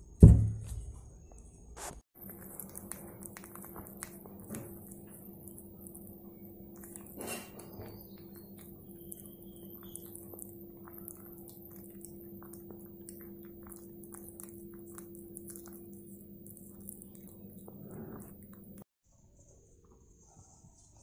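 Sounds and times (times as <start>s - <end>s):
low hum: 2.2s - 18.8s
kitten chewing food: 2.2s - 18.9s.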